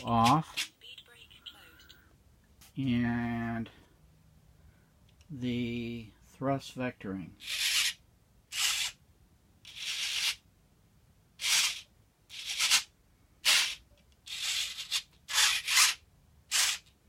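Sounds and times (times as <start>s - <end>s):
servo whirring: 7.4s - 9.0s, 11.4s - 17.0s.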